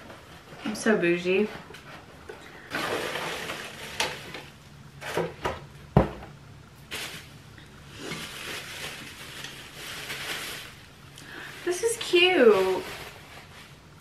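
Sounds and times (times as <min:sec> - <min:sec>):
packaging rustling: 0:06.9 - 0:14.0.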